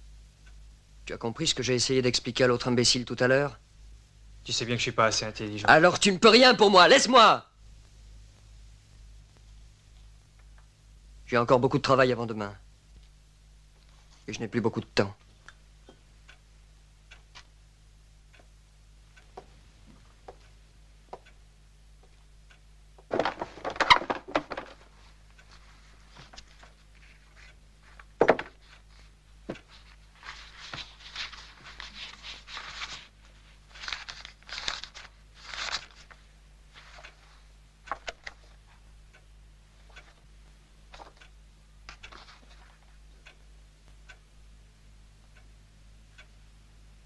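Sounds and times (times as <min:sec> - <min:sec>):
objects clattering: 0:23.0 - 0:24.9
dry scratching and rustling: 0:29.7 - 0:36.2.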